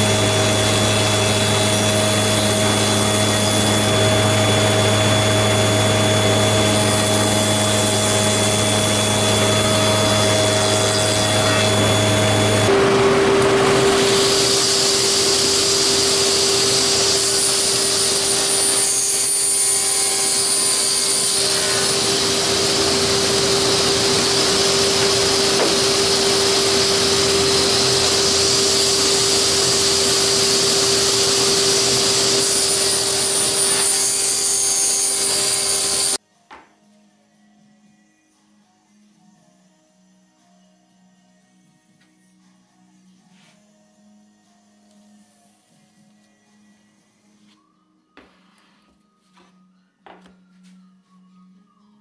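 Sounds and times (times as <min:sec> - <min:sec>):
table saw running: 0:00.0 - 0:36.2.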